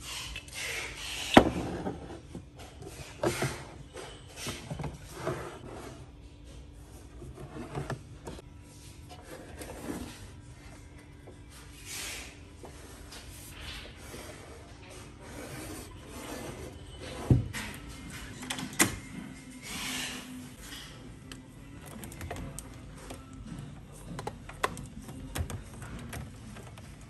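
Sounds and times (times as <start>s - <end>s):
containers scraping and rubbing: 0.0s - 6.2s, 6.9s - 10.7s, 11.9s - 17.9s.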